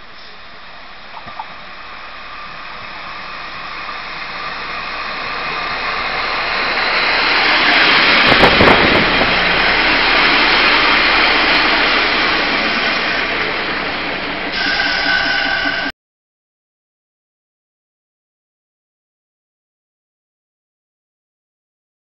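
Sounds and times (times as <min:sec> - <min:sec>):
diesel train approaching: 0:00.0 - 0:15.9.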